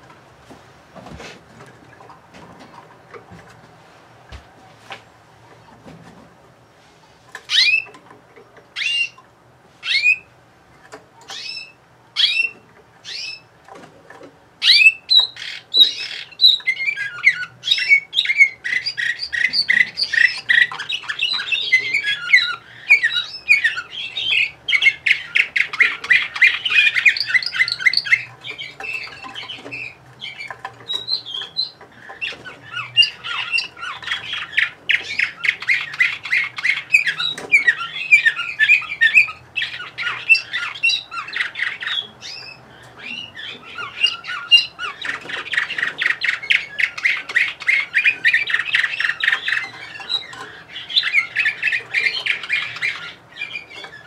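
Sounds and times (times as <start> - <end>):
canary singing trills: 7.4 - 10.4, 11.2 - 13.6, 14.6 - 54.0.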